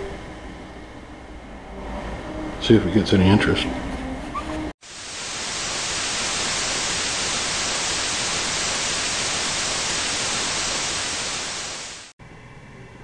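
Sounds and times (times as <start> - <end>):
tv static hiss: 4.8 - 12.1.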